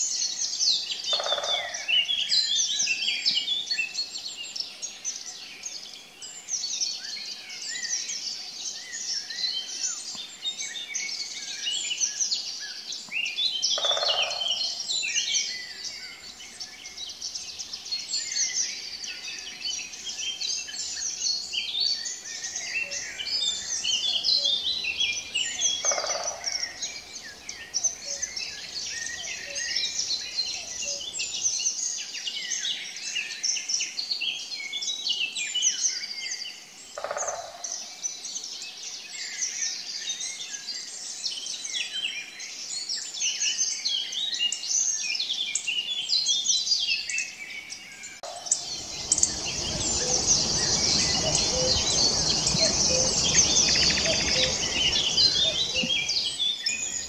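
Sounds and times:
songbirds chirping and singing: 0.0s - 57.0s
low rumble: 48.4s - 56.3s.

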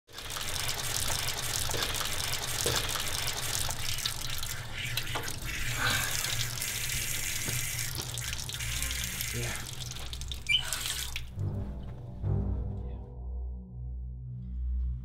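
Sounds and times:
running tap water: 0.1s - 11.4s.

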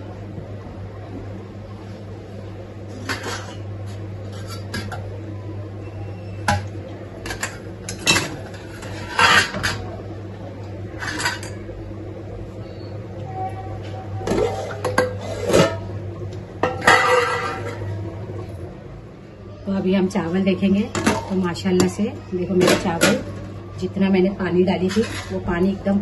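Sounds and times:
steady low hum: 0.0s - 26.0s
utensils and dishes clattering: 2.9s - 5.2s, 6.4s - 10.0s, 10.9s - 11.7s, 14.2s - 15.9s, 16.6s - 18.0s, 20.6s - 23.6s, 24.7s - 26.0s.

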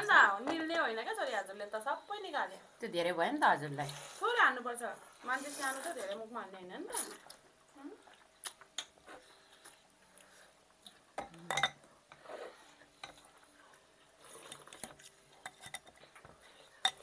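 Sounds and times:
cutlery clinking on glass bowls: 11.2s - 11.8s, 16.8s - 17.0s.

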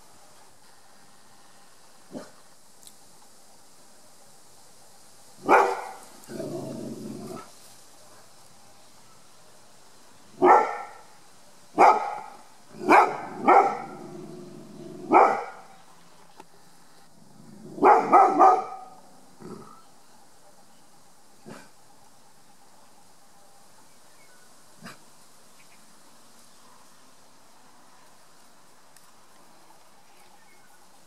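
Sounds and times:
dog barking: 2.1s - 2.4s, 5.4s - 6.0s, 10.4s - 11.1s, 11.8s - 14.0s, 15.1s - 15.7s, 17.8s - 19.0s.

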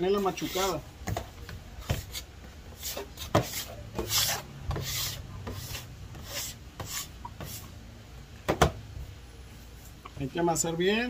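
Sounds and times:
scraper rasping dough off wood: 1.9s - 7.7s.

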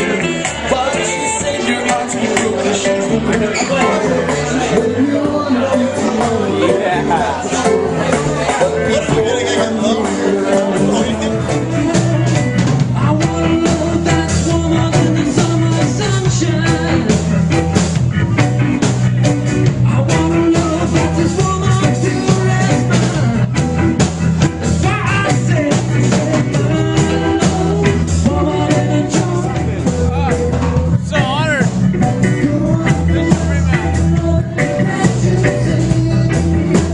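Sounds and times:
person singing: 0.0s - 19.0s, 19.6s - 23.8s, 24.6s - 36.9s
bass: 0.0s - 36.9s
drums: 0.0s - 36.9s
electric guitars: 0.0s - 36.9s.

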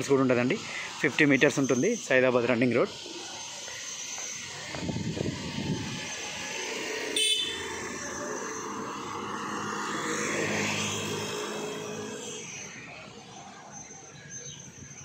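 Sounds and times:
vehicle engine passing by: 4.3s - 14.0s
vehicle horn honking: 7.2s - 7.7s.

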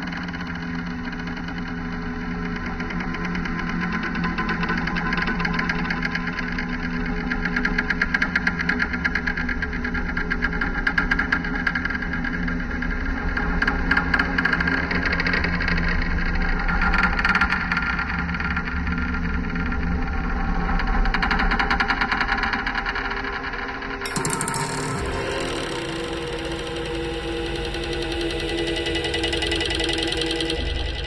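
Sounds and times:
steady low drone: 11.8s - 31.0s
rapidly fluttering electronic texture: 20.8s - 31.0s.

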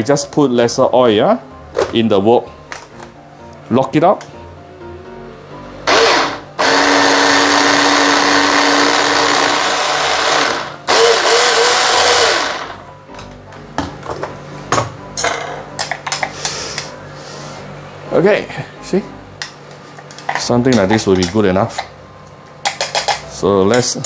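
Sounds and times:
hand blender motor chopping: 5.9s - 12.8s.

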